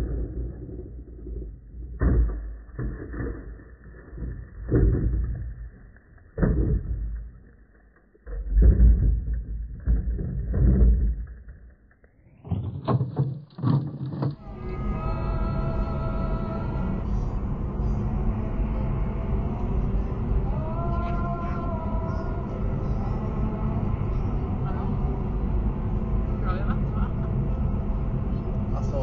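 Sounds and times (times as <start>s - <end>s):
toy truck tumbling thumps: 8.3s - 14.4s.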